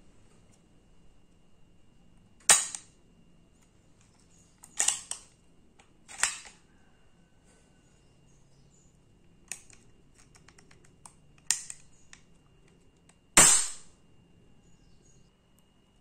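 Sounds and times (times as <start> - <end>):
air pistol cocking and snapping: 4.6 - 5.3, 6.1 - 6.6, 9.5 - 12.3.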